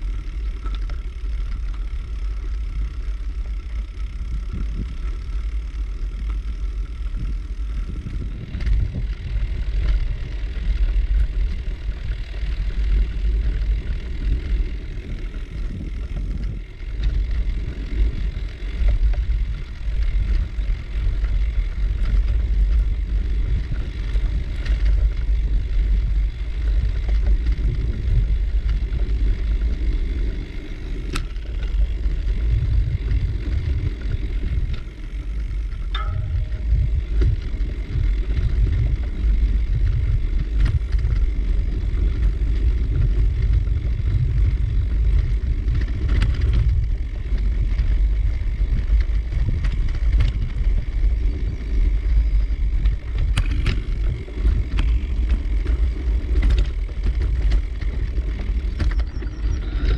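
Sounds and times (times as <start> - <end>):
bicycle tyre noise: 0.0 - 59.9
wind rumble on microphone: 0.0 - 59.9.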